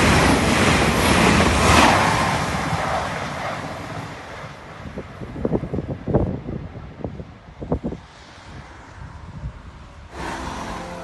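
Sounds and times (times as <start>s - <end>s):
wind rumbling on microphone: 0.0s - 11.0s
steady held tones: 10.1s - 11.0s.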